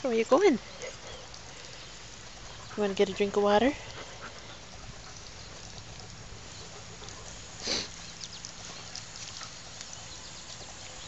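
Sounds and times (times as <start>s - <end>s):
background hiss: 0.0s - 11.0s
dog breathing noisily: 2.4s - 5.7s, 6.4s - 8.0s.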